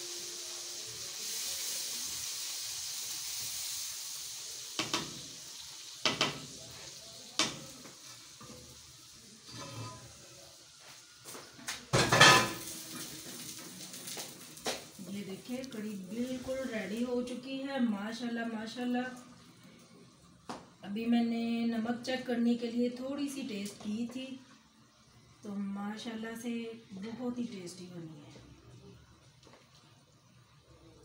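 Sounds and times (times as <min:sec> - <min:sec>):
hot oil sizzling: 0:00.0 - 0:19.3
spatula scraping metal pan: 0:09.5 - 0:10.1.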